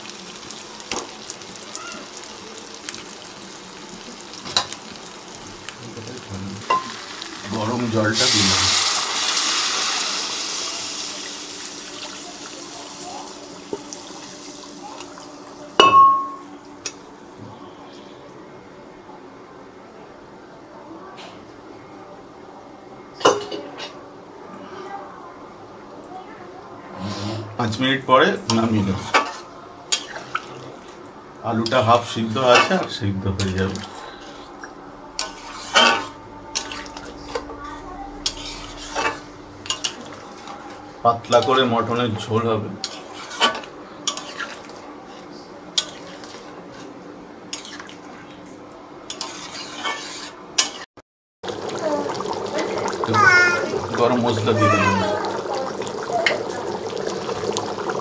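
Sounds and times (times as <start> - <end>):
hot water pouring and splashing: 0.0 - 15.6, 31.9 - 34.0, 51.4 - 58.0
spoon scraping metal pan: 35.2 - 37.4, 49.1 - 50.8.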